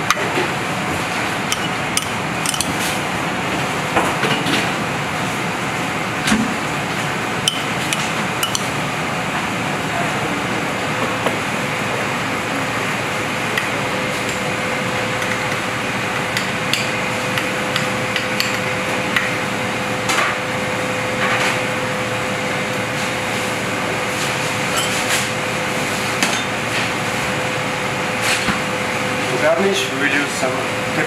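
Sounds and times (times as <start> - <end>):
constant hum: 0.0 - 31.0
kitchen ventilation rushing: 0.0 - 31.0.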